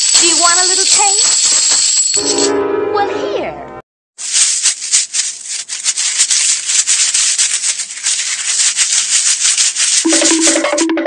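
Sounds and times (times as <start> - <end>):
dry scratchy rattle: 4.2 - 10.8.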